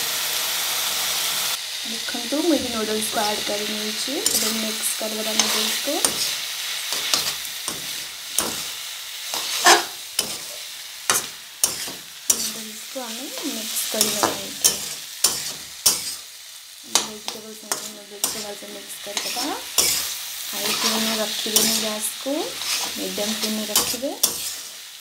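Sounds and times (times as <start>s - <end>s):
hot oil sizzling: 0.0s - 25.0s
spatula clattering and scraping pan: 4.2s - 16.3s, 16.9s - 24.8s.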